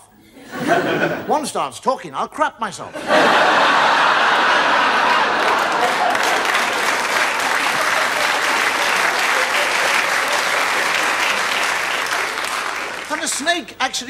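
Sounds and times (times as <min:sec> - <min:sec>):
studio audience applauding: 0:03.5 - 0:14.0.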